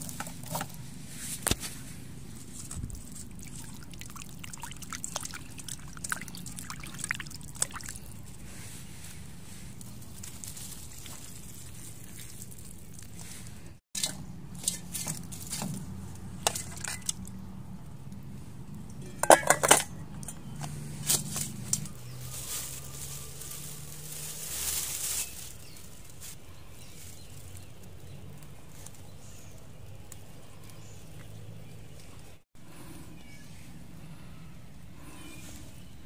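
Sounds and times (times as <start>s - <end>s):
steel bowl and utensils clinking: 14.0s - 17.3s, 18.9s - 20.6s.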